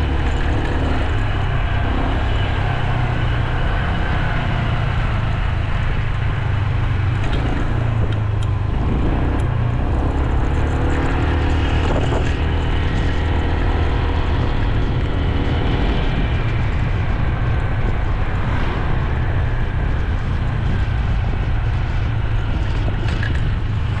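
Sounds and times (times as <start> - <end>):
motorcycle engine drone: 0.0 - 24.0
tyre road noise: 0.0 - 24.0
wind rushing over microphone: 0.0 - 24.0.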